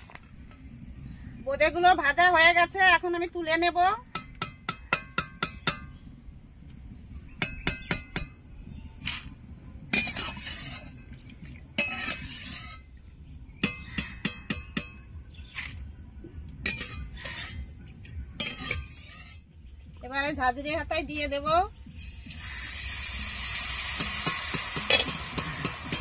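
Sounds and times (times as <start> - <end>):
ladle scraping: 9.9 - 14.2, 16.6 - 19.5
metal ladle clinking on pan rim: 16.6 - 17.5.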